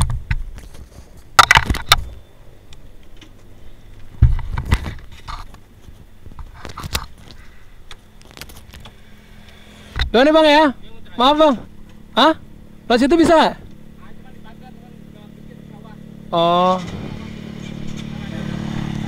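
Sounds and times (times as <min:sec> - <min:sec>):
microphone handling noise: 0:04.0 - 0:09.0.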